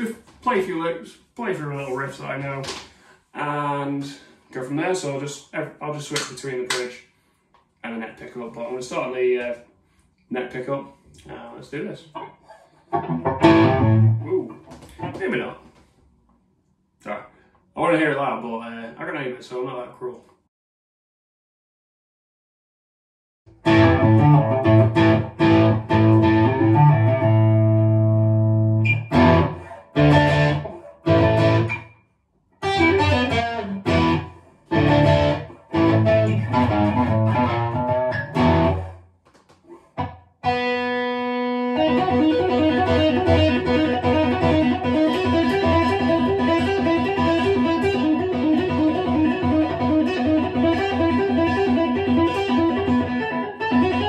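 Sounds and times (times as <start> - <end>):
distorted electric guitar: 12.1 - 15.6, 23.5 - 31.8, 32.6 - 39.0, 39.7 - 54.0.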